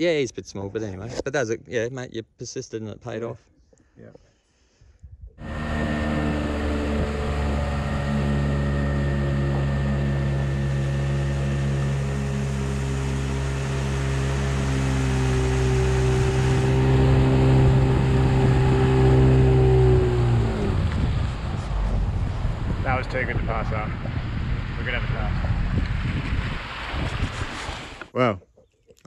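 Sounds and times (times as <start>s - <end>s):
outboard motor running: 5.4s - 26.1s
water rushing past hull: 5.4s - 28.1s.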